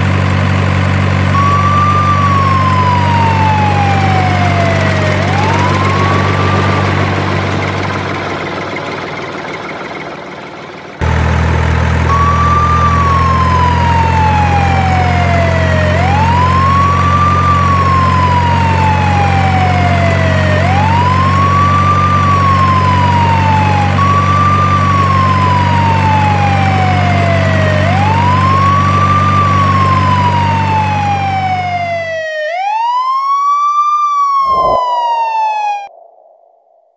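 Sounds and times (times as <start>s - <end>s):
low engine drone: 0.0s - 32.2s, 34.4s - 36.9s
emergency siren wailing: 1.2s - 8.8s, 12.0s - 36.7s.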